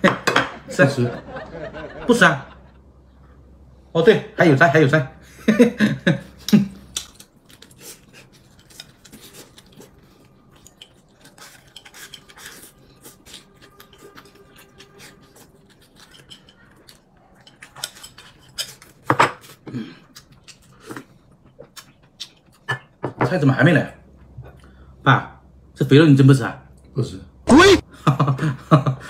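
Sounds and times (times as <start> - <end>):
chewing: 6.4 - 23.0
utensils clinking on plates: 10.5 - 19.4.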